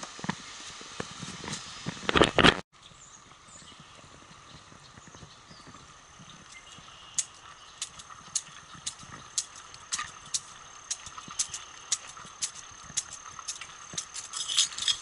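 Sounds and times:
bird chirps: 2.8s - 10.3s
footsteps on muddy trail: 3.6s - 15.0s.

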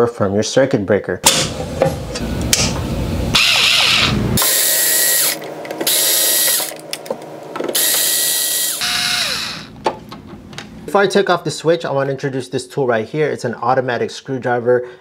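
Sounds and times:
electric screwdriver whine: 3.3s - 6.8s, 7.7s - 9.8s
rough mechanical noise: 3.3s - 9.8s.

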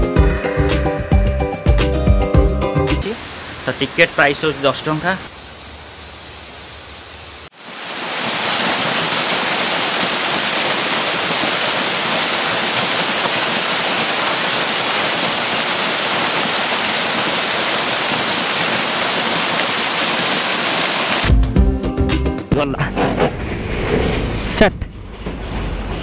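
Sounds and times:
waterfall roaring: 3.0s - 21.3s.

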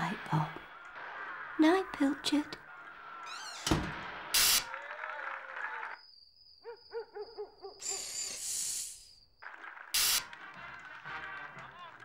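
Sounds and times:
owl hooting: 6.6s - 9.0s
bright hiss: 7.8s - 9.2s, 10.0s - 10.2s.

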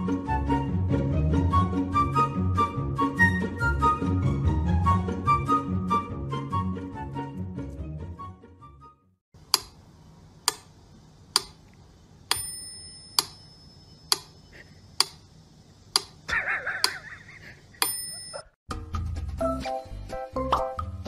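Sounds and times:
sharp ticks: 10.4s - 10.7s, 11.3s - 11.7s, 14.1s - 14.4s, 15.0s - 15.2s, 15.9s - 17.0s
thin ringing tone: 12.3s - 14.6s, 17.8s - 18.6s.

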